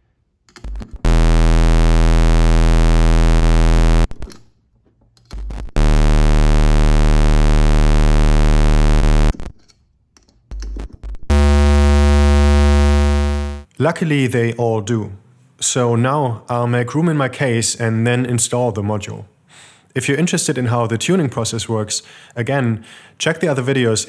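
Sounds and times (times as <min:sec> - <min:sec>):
steady low oscillator tone: 0:00.7 - 0:04.2, 0:05.8 - 0:09.5, 0:11.3 - 0:13.6.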